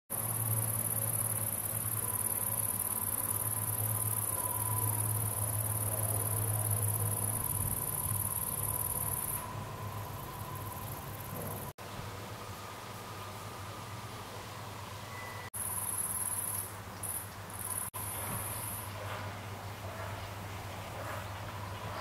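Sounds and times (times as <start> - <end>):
high-pitched insect chirring: 0.1 - 11.7, 15.6 - 18.9.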